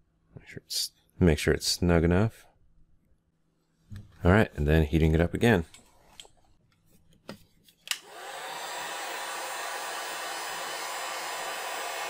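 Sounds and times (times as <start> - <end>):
heat gun blowing: 7.9 - 12.0.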